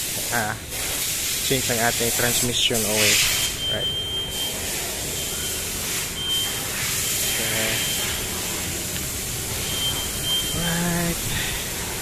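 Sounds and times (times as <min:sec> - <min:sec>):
high beeping tone: 0:03.2 - 0:11.9.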